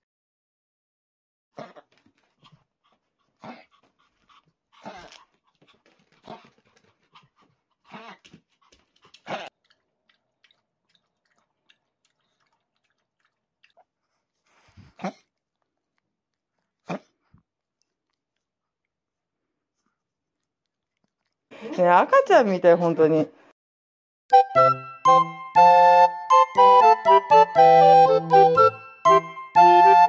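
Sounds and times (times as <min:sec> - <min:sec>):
dog lapping water: 0:02.8 - 0:14.4.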